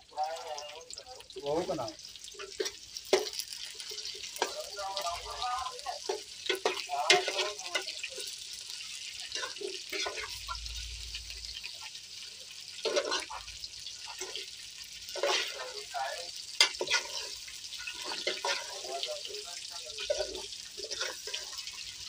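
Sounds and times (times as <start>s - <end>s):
frying hiss: 0.0s - 22.0s
metal spoon scraping a pot: 5.9s - 10.9s, 12.8s - 13.4s, 15.1s - 15.8s, 16.6s - 19.3s, 19.9s - 22.0s.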